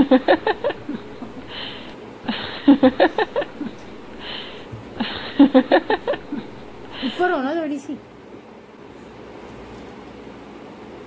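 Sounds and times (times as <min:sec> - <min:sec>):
woman giggling: 0:00.0 - 0:07.4.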